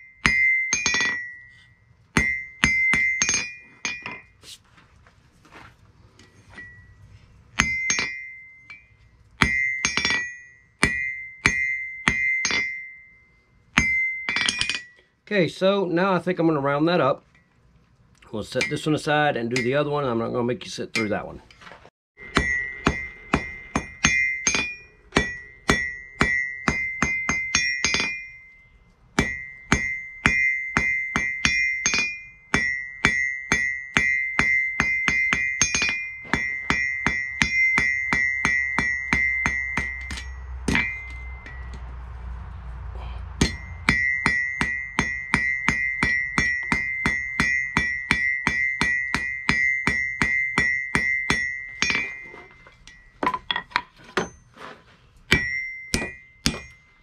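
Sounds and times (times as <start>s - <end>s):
hammer striking steel on anvil: 0.0s - 4.4s, 7.5s - 15.0s, 18.5s - 20.0s, 22.2s - 42.1s, 43.0s - 54.4s, 55.3s - 57.0s.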